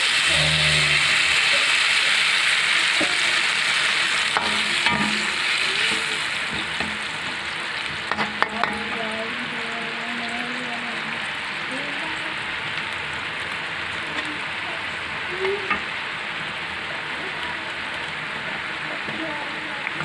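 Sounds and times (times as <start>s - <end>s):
stir-fry sizzling in a wok: 0.0s - 20.0s
metal spatula scraping a pan: 2.9s - 9.3s.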